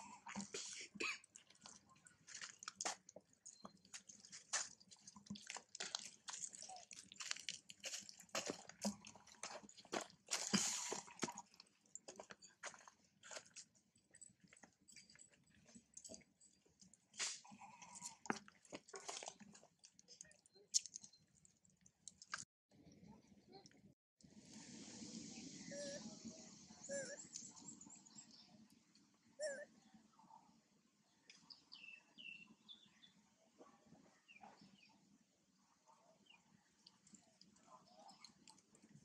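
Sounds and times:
monkey crunching food: 0.1 - 12.1, 16.8 - 22.5.

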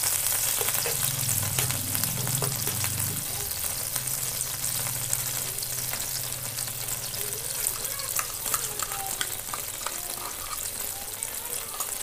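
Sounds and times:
butter sizzling in a frying pan: 0.0 - 12.0
spoon stirring in a pan: 0.0 - 12.0
steady low hum: 0.8 - 8.3.

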